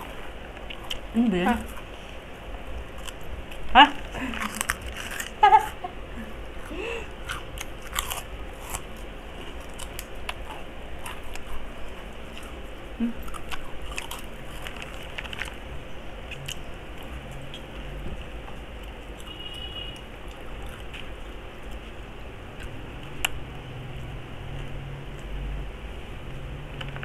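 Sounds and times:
crunching and chewing crispy snacks: 2.8s - 5.9s, 6.6s - 23.4s.

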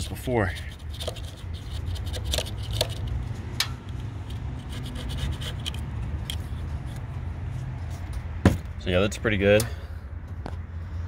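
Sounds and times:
scraper scratching metal: 0.0s - 3.2s, 4.2s - 7.0s.

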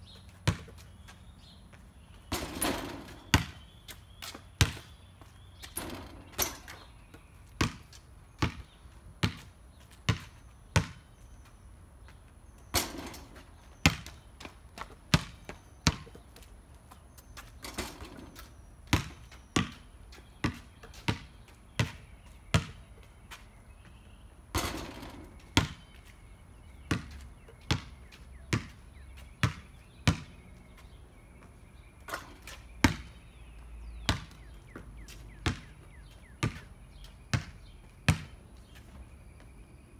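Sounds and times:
basketball bouncing on concrete: 0.1s - 11.2s, 12.0s - 38.8s
ball hitting backboard: 2.3s - 3.7s, 24.6s - 25.8s.

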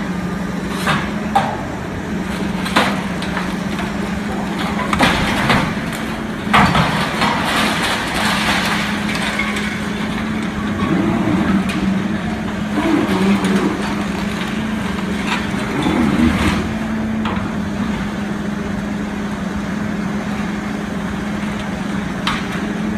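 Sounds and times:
excavator engine drone: 0.0s - 22.9s
debris cracking and crunching: 2.1s - 17.6s.

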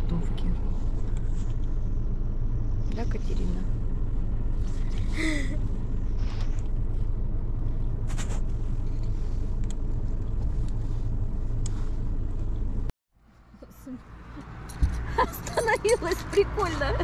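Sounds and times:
low rumble: 0.0s - 13.4s.

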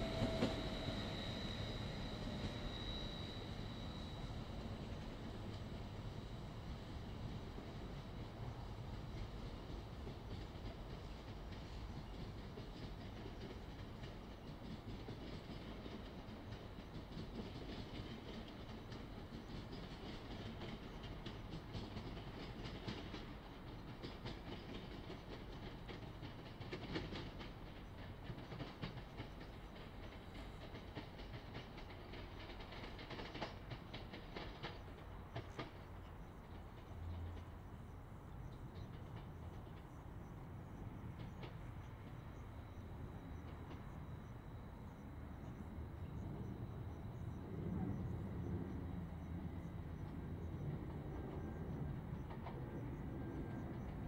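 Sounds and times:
train wheels clicking over rails: 0.0s - 54.0s
highway traffic hum: 33.6s - 54.0s.

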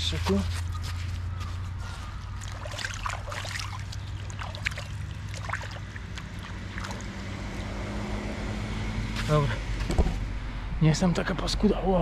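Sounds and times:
hands splashing in water: 2.3s - 7.2s.

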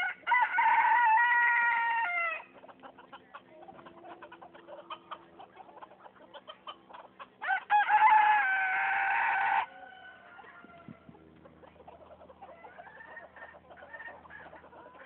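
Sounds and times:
rooster crowing: 0.0s - 2.5s, 7.4s - 11.0s
chickens clucking: 0.0s - 15.0s.

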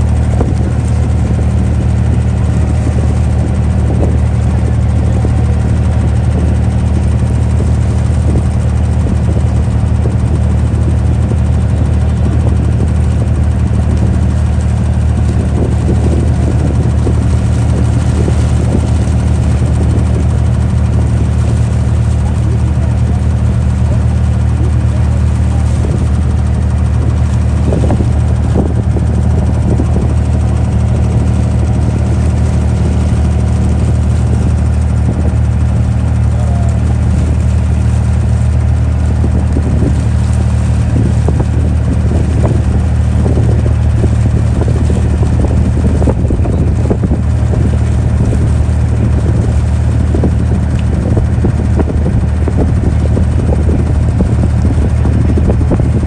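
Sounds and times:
boat engine humming: 0.0s - 56.0s.

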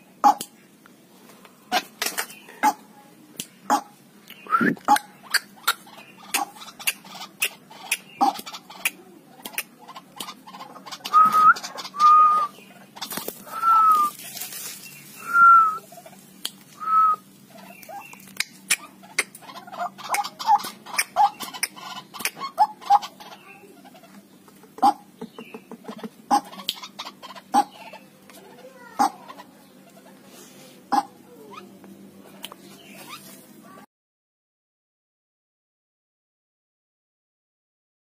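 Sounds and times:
bird calling with clicks and whistles: 11.0s - 14.2s.

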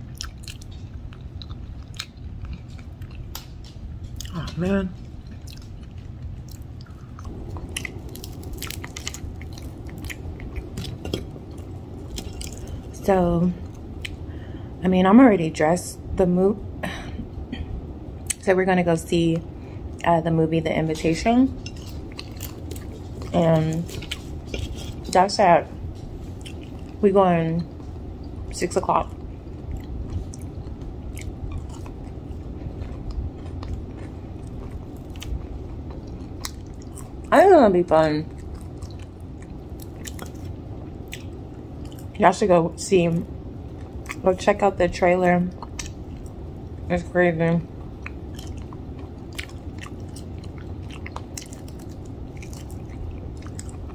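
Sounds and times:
chewing crispy fried food: 0.0s - 14.3s, 21.5s - 27.0s, 27.6s - 42.2s, 43.7s - 47.0s, 47.6s - 53.9s
crunchy batter crackles: 0.0s - 14.6s, 20.9s - 42.3s, 47.7s - 53.9s.

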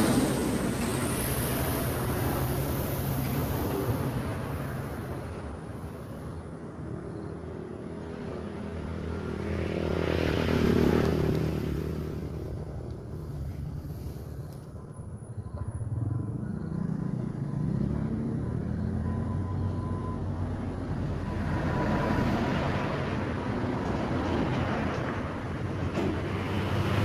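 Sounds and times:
traffic engine hum: 0.0s - 27.0s
motor vehicle passing: 7.7s - 14.9s, 15.6s - 27.0s.

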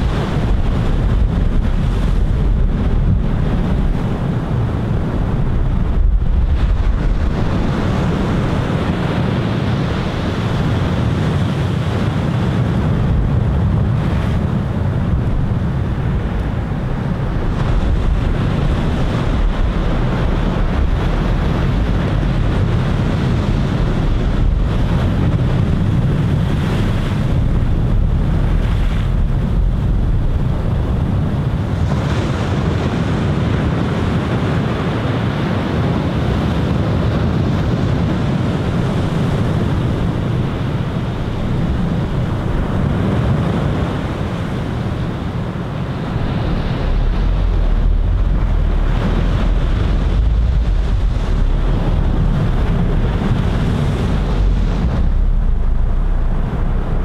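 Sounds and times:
ocean surf breaking: 0.0s - 57.0s
wind buffeting microphone: 0.0s - 57.0s.

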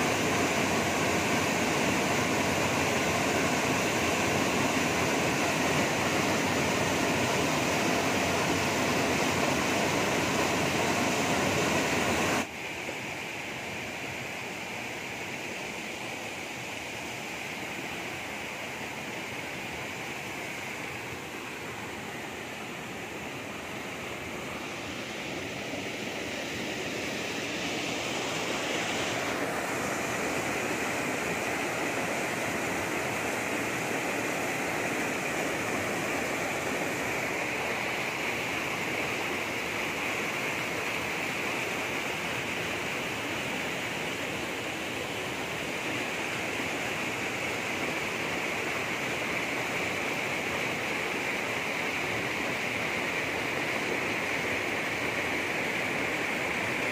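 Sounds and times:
small waterfall rushing: 0.0s - 56.9s.

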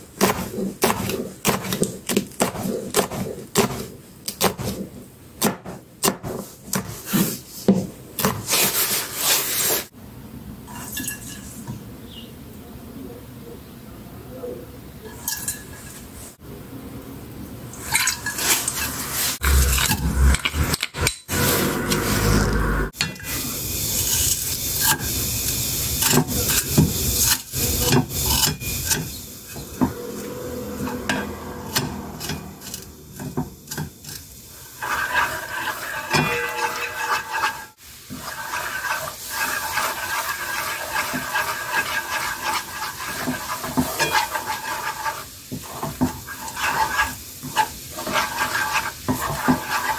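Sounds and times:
spatula scraping wok: 0.0s - 5.0s, 6.2s - 9.9s, 17.8s - 49.9s
sauce bubbling and sizzling: 21.3s - 49.9s.

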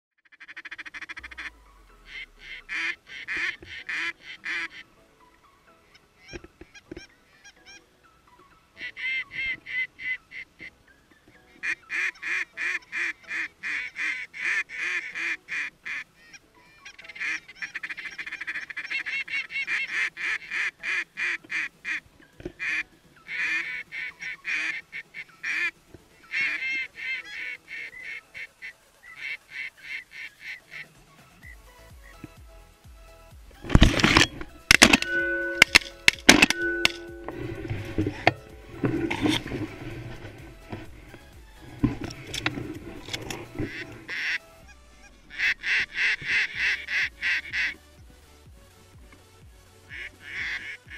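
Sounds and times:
geese honking: 0.2s - 32.4s, 33.0s - 48.0s, 49.9s - 50.9s.

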